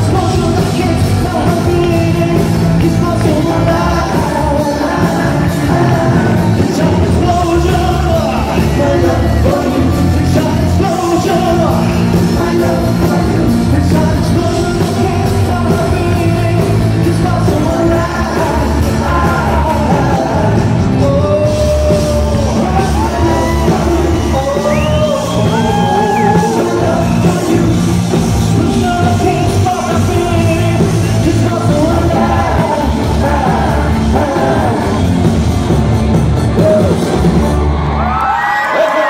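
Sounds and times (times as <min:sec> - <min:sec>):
live pop band with male vocals: 0:00.0 - 0:39.0
audience yelling: 0:21.3 - 0:28.9, 0:36.4 - 0:39.0.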